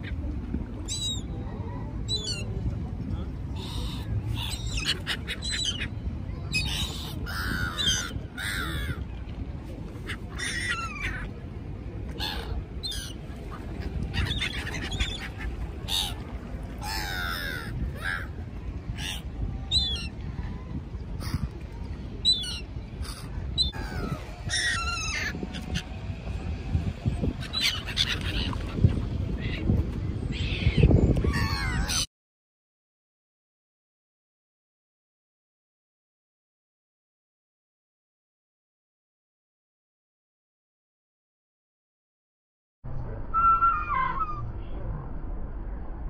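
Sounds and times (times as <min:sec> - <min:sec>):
steady low rumble: 0:00.0 - 0:31.9, 0:42.9 - 0:46.0
gulls calling: 0:03.5 - 0:09.1, 0:10.0 - 0:11.4, 0:12.1 - 0:20.2, 0:21.0 - 0:32.1, 0:43.3 - 0:44.5.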